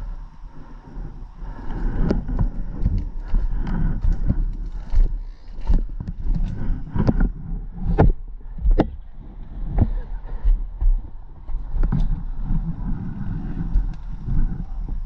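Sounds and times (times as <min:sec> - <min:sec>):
low wind rumble: 0:00.0 - 0:15.0
footsteps on rocky ground: 0:01.7 - 0:08.2.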